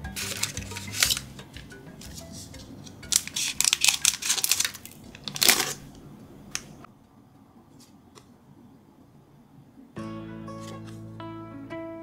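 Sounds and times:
plastic packaging crinkling: 0.1 - 5.9.

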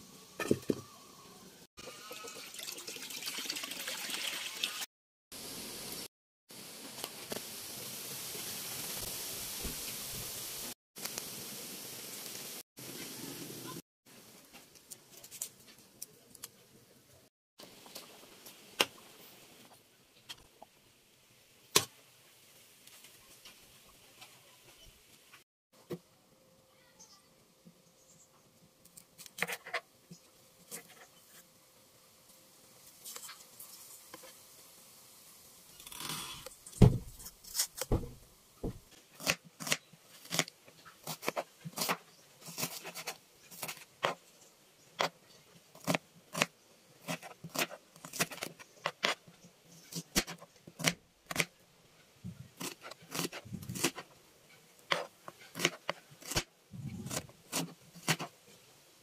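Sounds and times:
knife chopping on a board: 36.8 - 37.2, 37.9 - 40.4.

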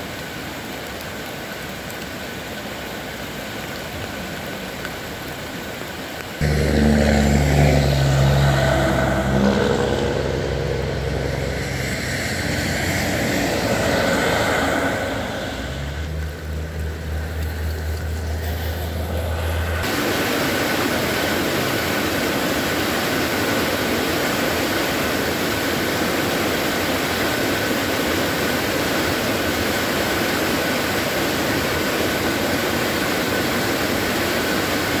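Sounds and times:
floodwater cascading into creek: 0.0 - 35.0
low hum: 6.4 - 20.1.

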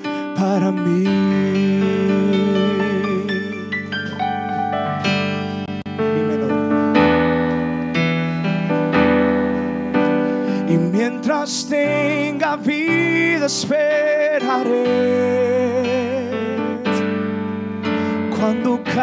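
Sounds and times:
man singing with vibrato: 0.0 - 4.0, 10.5 - 17.4, 18.0 - 19.0
keyboard playing sustained chords: 0.0 - 19.0.

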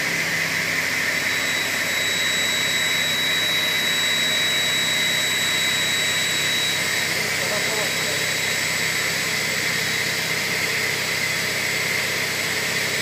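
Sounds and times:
circular saw cutting metal: 1.2 - 13.0.

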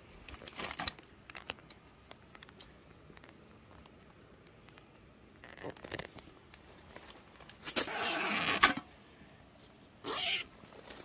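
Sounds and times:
soft handling rustle: 0.0 - 7.8, 9.1 - 11.0
zipper being pulled: 5.4 - 6.2, 7.7 - 8.8, 10.0 - 10.5.

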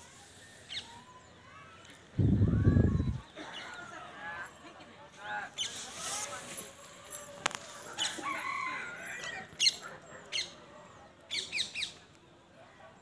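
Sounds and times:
birds chirping: 0.0 - 5.9.

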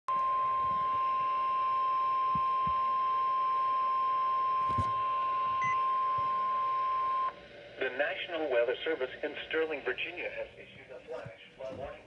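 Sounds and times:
steady high alarm tone: 0.1 - 7.4.

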